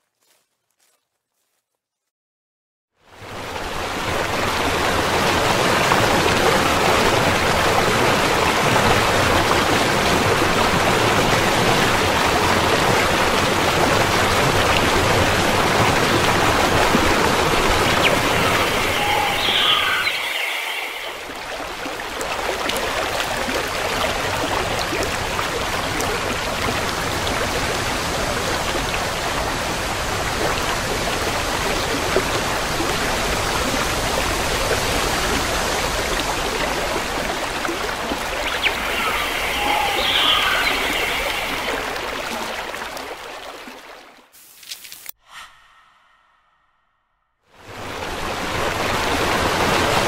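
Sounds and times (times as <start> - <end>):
stream flowing water: 3.0 - 45.2, 47.6 - 50.0
brief high-pitched call: 17.8 - 21.3, 38.4 - 42.1.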